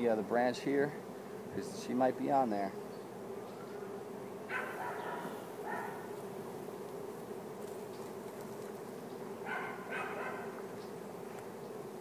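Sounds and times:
bee swarm humming: 0.0s - 12.0s
dog barking: 4.5s - 6.1s, 9.4s - 10.6s.

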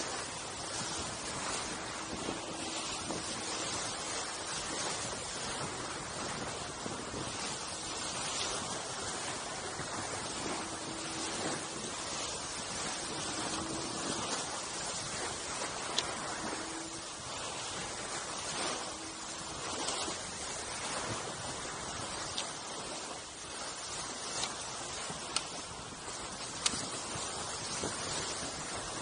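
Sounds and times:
bow wave hissing: 0.0s - 6.2s, 7.1s - 22.1s
water rushing: 0.0s - 29.0s
wind: 0.0s - 29.0s
faint ticks: 15.9s - 16.4s, 25.3s - 25.6s, 26.5s - 26.9s.

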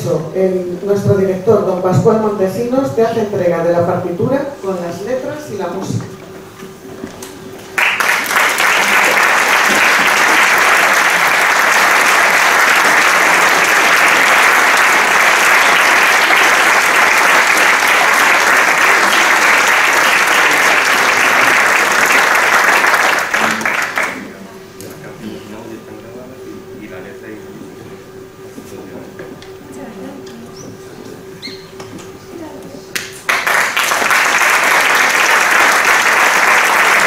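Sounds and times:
audience applauding: 7.6s - 24.4s, 33.0s - 37.0s.

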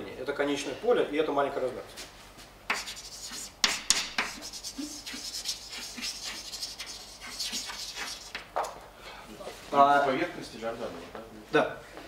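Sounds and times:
chalk scratching on blackboard: 2.7s - 8.5s
chalk tapping: 2.7s - 8.6s.

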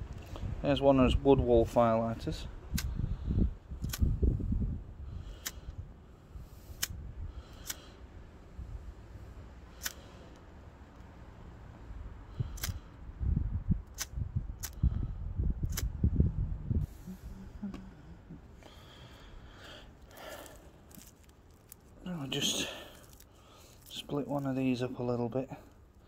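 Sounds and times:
low rumbling bursts: 0.0s - 25.8s
lighter spark wheel clicks: 9.8s - 10.4s, 12.6s - 12.8s.

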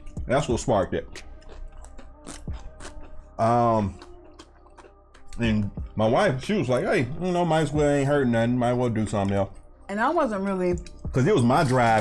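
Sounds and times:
mouth eating sounds: 1.1s - 5.9s
person humming mmm: 1.2s - 5.8s.

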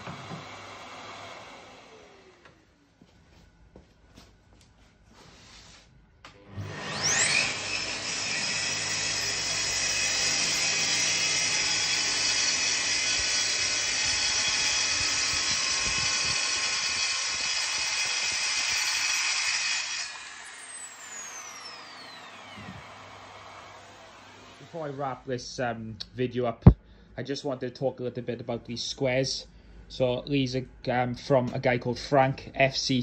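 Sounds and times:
dust extractor humming: 0.0s - 2.8s, 6.3s - 25.3s
circular saw cutting board: 6.5s - 25.2s
saw blade winding down: 6.5s - 25.2s.

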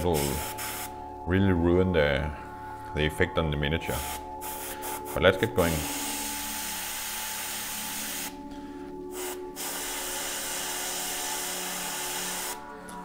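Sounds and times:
airbrush hissing: 0.0s - 0.9s, 3.9s - 8.4s, 9.1s - 12.6s
air compressor humming: 5.8s - 12.6s.

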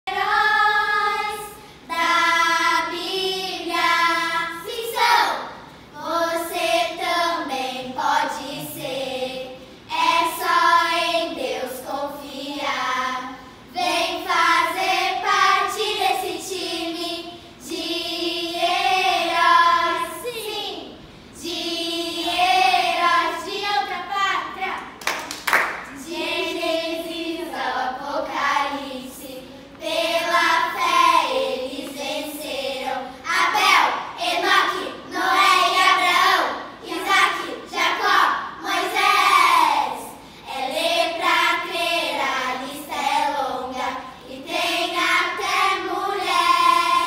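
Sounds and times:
girls singing in unison: 0.0s - 24.9s, 25.5s - 47.0s.

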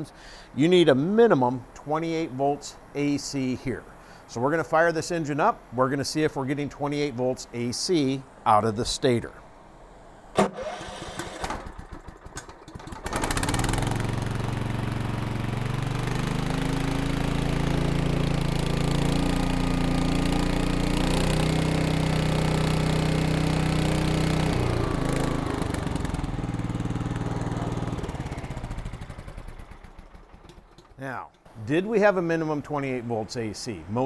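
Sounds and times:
engine running: 10.2s - 33.1s
electric starter cranking engine: 10.3s - 31.0s.

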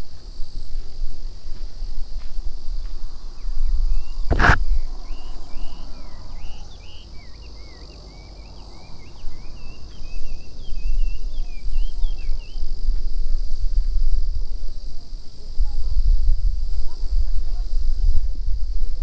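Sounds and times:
wind on microphone: 0.0s - 6.8s, 10.0s - 19.0s
high insect drone: 0.0s - 19.0s
songbird chirping: 2.7s - 13.0s
sharp knock: 4.3s - 4.7s.

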